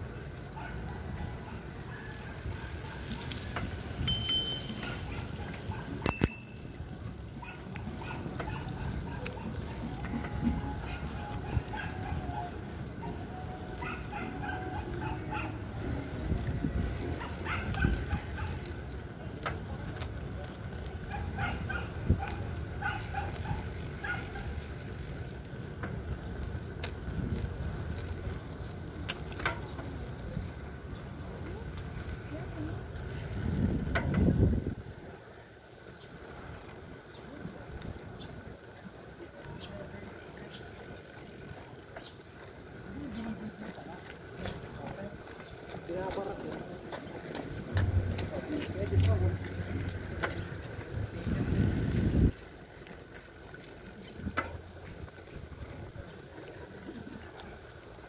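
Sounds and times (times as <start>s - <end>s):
low rumble of riding: 0.0s - 58.0s
bicycle bell ringing: 4.0s - 5.2s, 6.0s - 7.1s
wind rumble on microphone: 14.8s - 24.5s, 25.8s - 35.2s, 47.5s - 52.7s.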